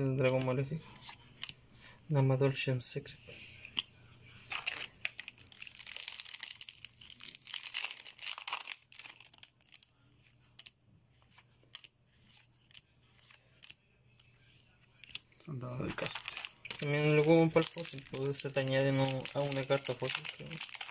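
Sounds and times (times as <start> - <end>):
foil pack crinkling: 4.5 - 9.8, 16.0 - 20.9.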